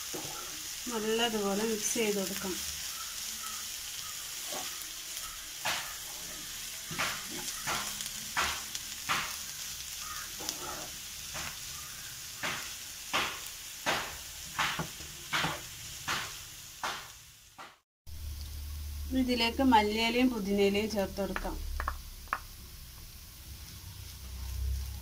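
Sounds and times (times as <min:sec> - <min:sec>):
spatula scraping and tapping pan: 0:00.0 - 0:00.6, 0:04.4 - 0:11.6, 0:12.4 - 0:17.0
food sizzling: 0:00.0 - 0:25.0.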